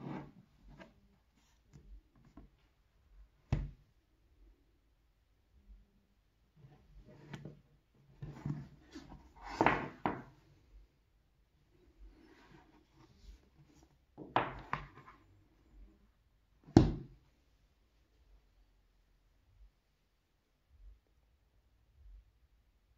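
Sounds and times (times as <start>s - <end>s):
book knocking on wooden table: 3.5s - 3.8s, 9.4s - 10.3s, 14.2s - 15.1s, 16.7s - 17.2s
books being handled: 6.8s - 10.6s, 11.9s - 15.6s.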